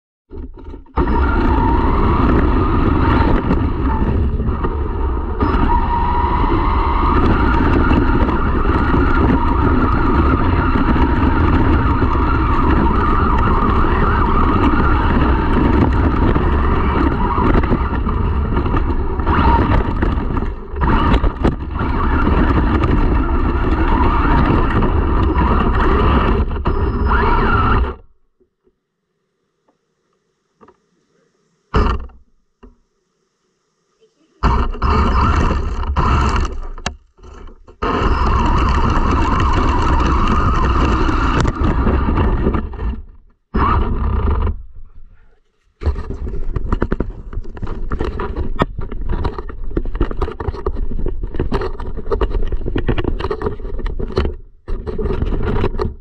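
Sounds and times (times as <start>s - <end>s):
tyres rumbling over asphalt and grass: 0.3s - 28.2s, 34.4s - 45.2s, 45.8s - 56.0s
toy truck motor whining: 0.9s - 28.1s, 34.4s - 43.0s.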